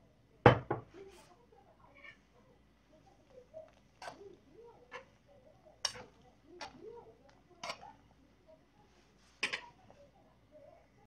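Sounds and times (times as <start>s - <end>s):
pot bubbling: 3.1s - 8.4s.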